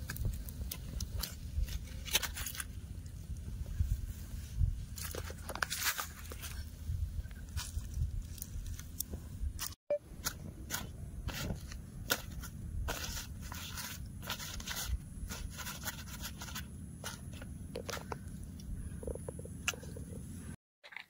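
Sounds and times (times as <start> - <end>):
leaf scraping and crackling: 0.0 - 9.1, 10.2 - 18.1.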